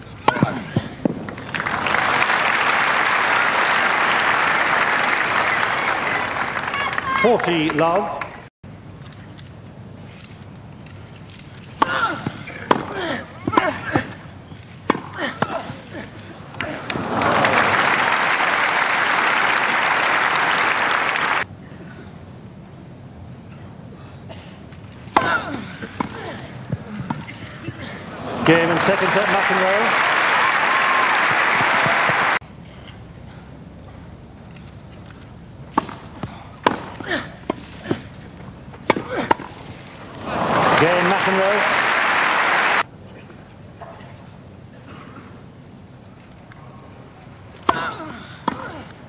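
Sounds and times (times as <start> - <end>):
stadium crowd applauding: 1.3 - 8.5, 16.8 - 21.5, 28.2 - 32.4, 40.1 - 42.9
tennis ball strikes: 35.7 - 38.1, 38.7 - 39.6
hushed crowd: 39.6 - 44.0.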